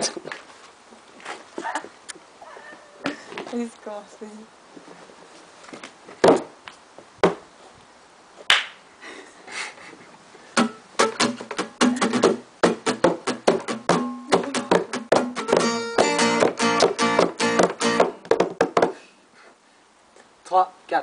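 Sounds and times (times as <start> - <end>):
hand slaps: 8.5 - 8.8
acoustic guitar strummed: 10.6 - 18.3.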